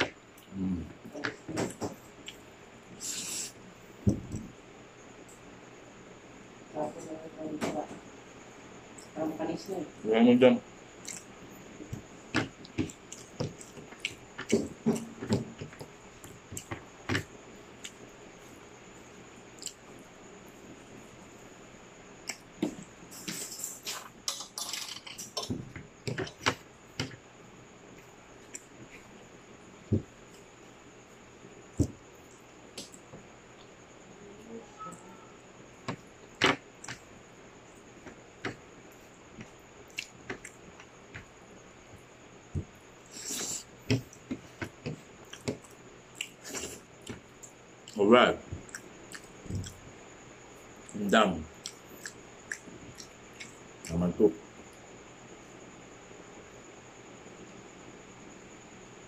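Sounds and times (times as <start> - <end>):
person chewing food: 11.0 - 11.3, 11.9 - 18.0, 39.9 - 40.6, 42.6 - 48.0, 48.6 - 49.8, 51.6 - 53.6.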